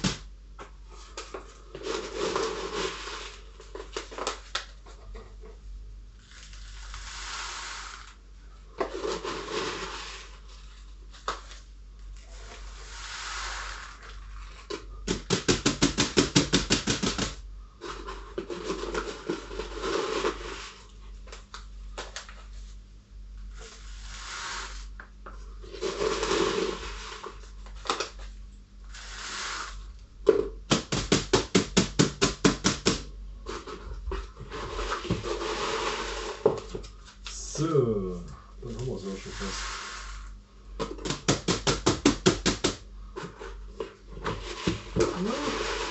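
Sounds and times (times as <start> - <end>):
gritty granules pouring: 6.2 - 8.2, 8.9 - 10.4, 12.5 - 14.5, 25.7 - 27.4, 39.1 - 40.2, 45.1 - 45.9.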